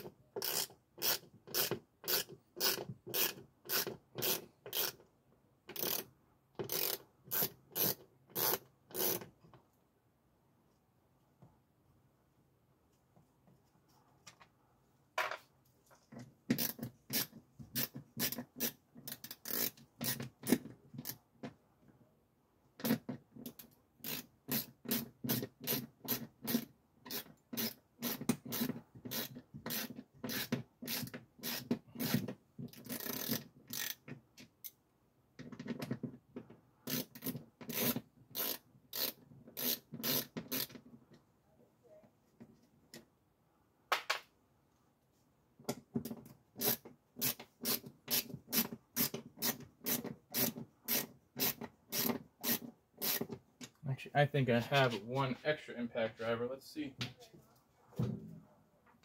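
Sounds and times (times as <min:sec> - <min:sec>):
hand ratchet clicking: 0:00.0 - 0:05.1, 0:05.7 - 0:09.3, 0:16.5 - 0:21.2, 0:22.8 - 0:34.8, 0:36.8 - 0:40.8, 0:46.6 - 0:53.3.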